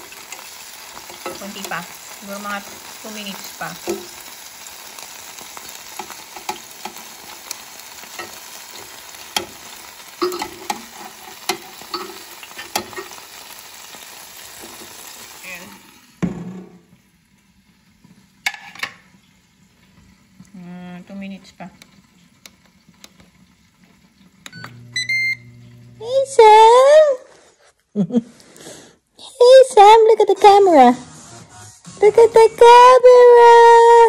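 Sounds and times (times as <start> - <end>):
meat skewers sizzling on grill: 0.0 - 16.3
loud knock: 16.2 - 16.8.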